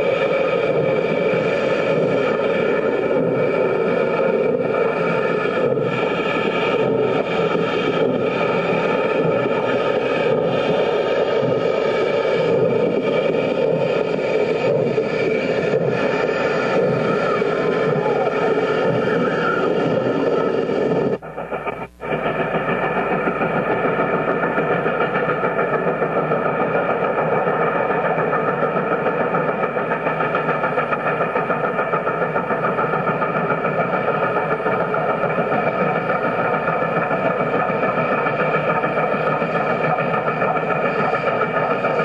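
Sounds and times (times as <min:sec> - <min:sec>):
motor vehicle drone: 0:14.0 - 0:25.5.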